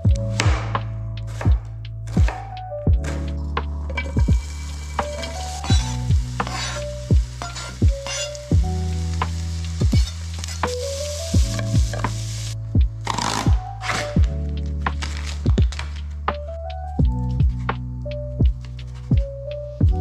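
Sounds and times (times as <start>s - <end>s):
background music with kick drum: 0.0s - 20.0s
fish sizzling in a pan: 4.1s - 12.6s.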